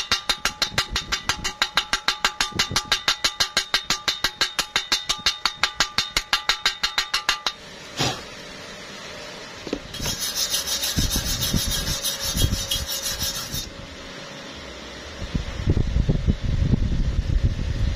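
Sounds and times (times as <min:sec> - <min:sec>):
scraping across metal: 0:09.9 - 0:13.7.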